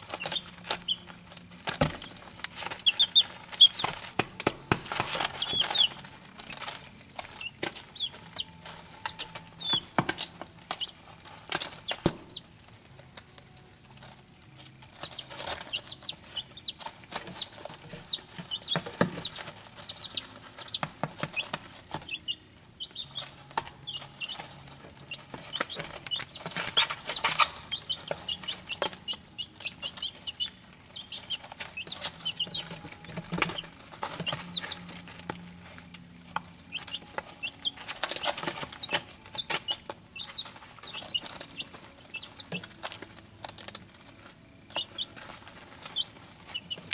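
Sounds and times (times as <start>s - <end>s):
rustling in wood shavings: 0.0s - 12.8s, 23.0s - 46.9s
chicks peeping: 0.0s - 46.9s.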